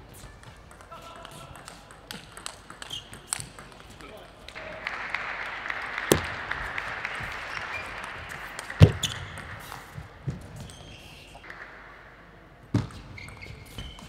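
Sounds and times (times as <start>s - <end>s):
crowd applause: 4.6s - 10.3s
table tennis ball knocks: 6.1s - 6.4s.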